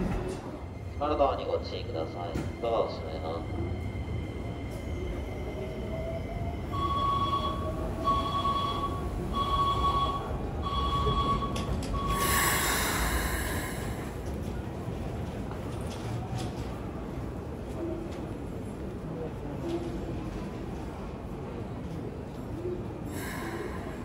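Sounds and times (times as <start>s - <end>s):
faint train machinery: 0.0s - 24.0s
electronic warning beep: 6.8s - 12.6s.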